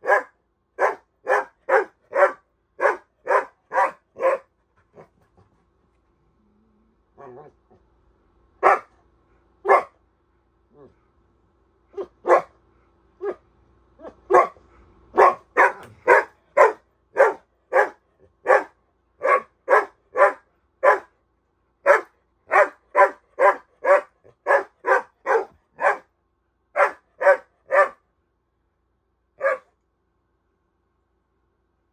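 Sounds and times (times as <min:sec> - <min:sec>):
dog barking: 0:00.0 - 0:05.1, 0:08.6 - 0:09.0, 0:09.6 - 0:10.0, 0:11.9 - 0:12.6, 0:13.2 - 0:13.4, 0:14.0 - 0:21.2, 0:21.8 - 0:26.1, 0:26.8 - 0:28.0, 0:29.4 - 0:29.8.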